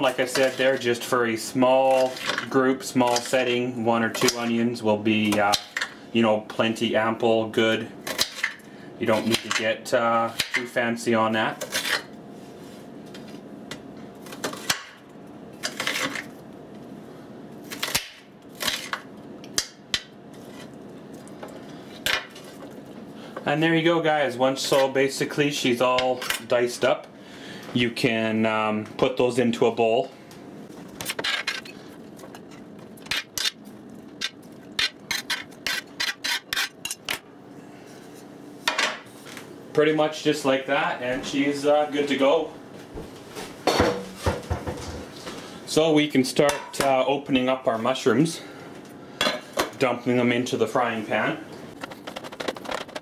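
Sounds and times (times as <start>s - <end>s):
knife scraping and slicing: 34.8s - 37.1s.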